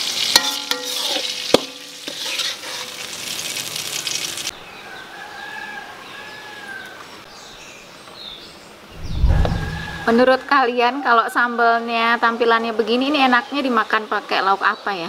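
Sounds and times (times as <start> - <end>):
hot oil sizzling in a pan: 0.0 - 4.5.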